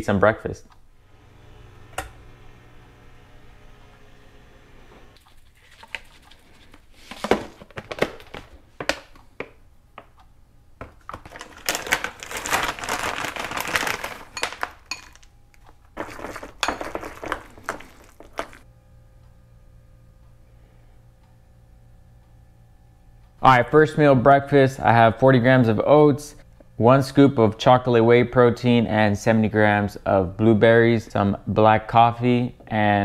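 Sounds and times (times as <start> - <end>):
plastic bag crinkling: 11.0 - 18.6
kitchen clatter and rustling: 16.0 - 18.6.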